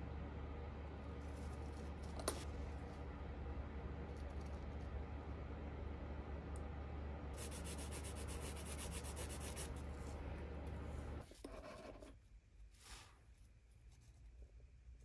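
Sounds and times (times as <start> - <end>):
steady low hum: 0.0 - 15.0
rubbing and scratching strokes: 7.4 - 10.2.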